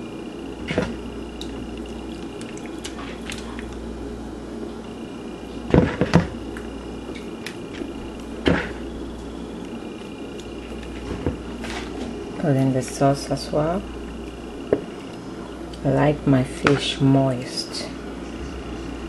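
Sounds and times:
steady low hum: 0:00.0 - 0:19.0
soft wet squishes: 0:01.4 - 0:03.8.

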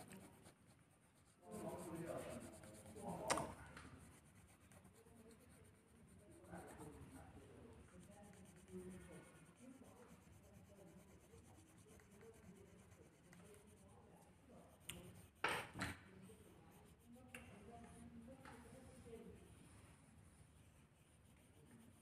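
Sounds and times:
faint murmur of voices: 0:00.0 - 0:22.0.

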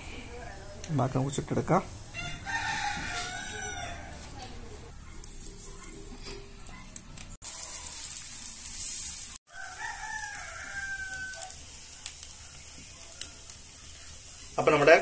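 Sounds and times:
rooster crowing: 0:02.1 - 0:04.6, 0:09.5 - 0:11.7
steady hiss: 0:07.5 - 0:15.0.

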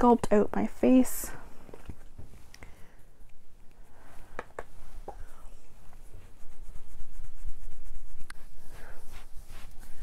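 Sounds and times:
brush rubbing on skin: 0:02.3 - 0:10.0.

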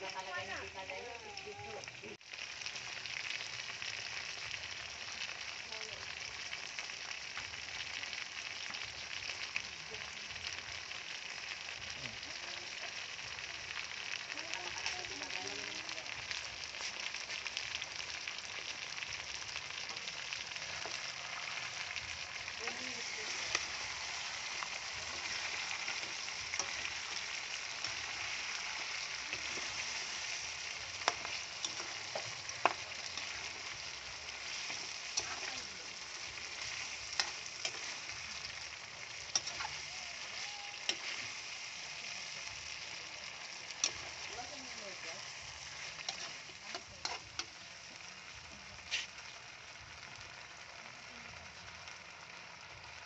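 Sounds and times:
chicken wings sizzling in oil: 0:00.0 - 0:53.0
spatula scraping a pan: 0:22.7 - 0:38.3, 0:45.6 - 0:47.4, 0:48.9 - 0:49.1.

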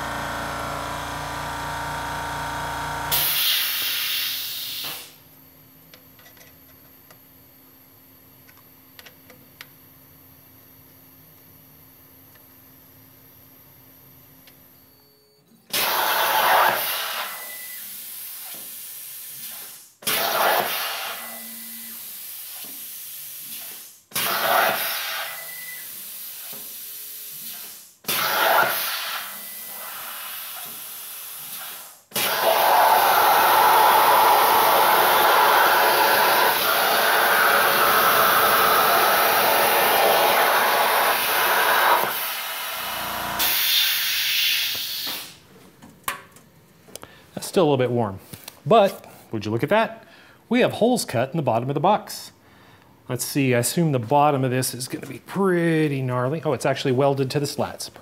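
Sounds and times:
plasma cutter cutting steel: 0:03.1 - 0:05.1, 0:15.7 - 0:26.5, 0:27.2 - 0:45.3.

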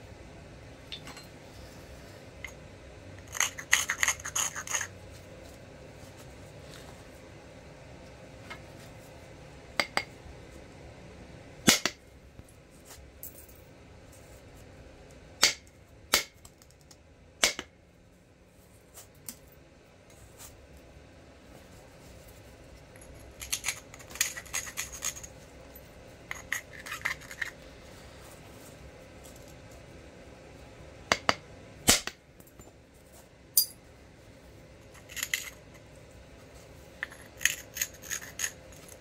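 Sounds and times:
small clicks and scratches: 0:23.0 - 0:25.4, 0:26.3 - 0:27.6, 0:37.0 - 0:39.0.

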